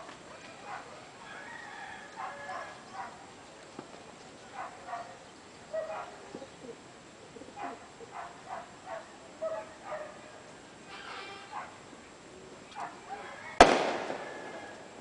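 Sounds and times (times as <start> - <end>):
dog barking: 0.6 - 1.0, 2.2 - 3.2, 4.5 - 6.2, 7.6 - 10.3, 11.5 - 11.8, 12.8 - 13.3.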